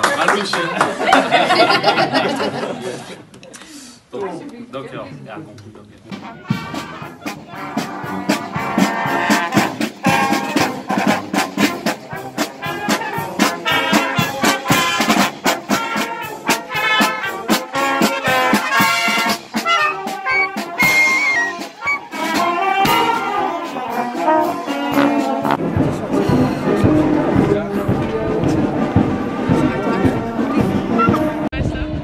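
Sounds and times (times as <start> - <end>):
marching drums beat: 6.1 - 31.5
trombones and trumpets: 6.1 - 32.0.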